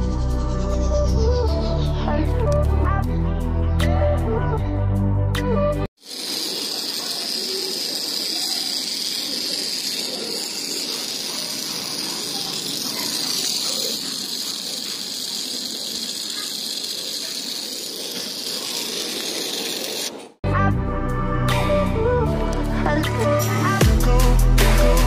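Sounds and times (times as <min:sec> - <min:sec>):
toy motor whirring: 0:06.0 - 0:20.4.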